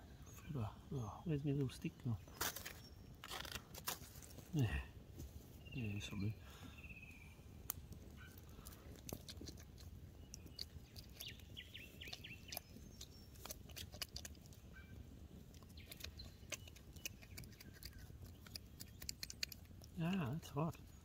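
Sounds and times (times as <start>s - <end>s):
bird chirping: 0.0s - 3.6s, 5.5s - 21.0s
campfire clicks and pops: 7.6s - 14.6s
stick stirring coals: 7.6s - 21.0s.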